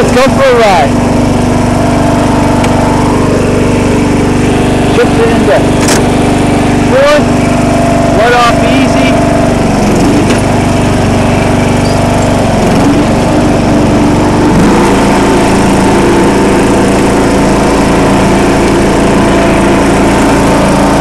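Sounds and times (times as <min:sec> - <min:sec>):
riding mower engine running: 0:00.0 - 0:21.0.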